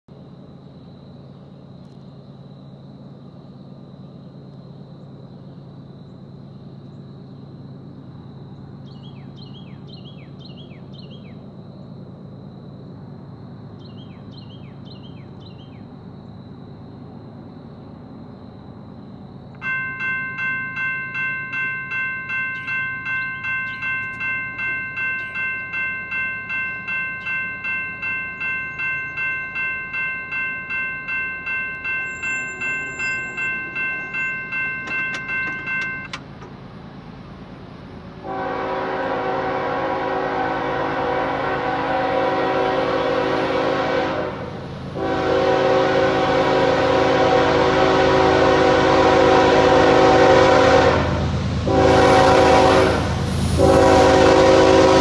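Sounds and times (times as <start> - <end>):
railroad crossing bell ringing: 19.6 - 55.0
bird-like chirps: 31.7 - 36.2.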